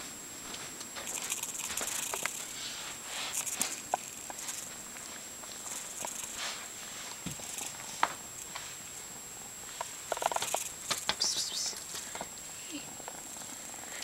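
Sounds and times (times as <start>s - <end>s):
faint high whine: 0.0s - 14.0s
kitten rustling on a rug: 0.4s - 8.8s.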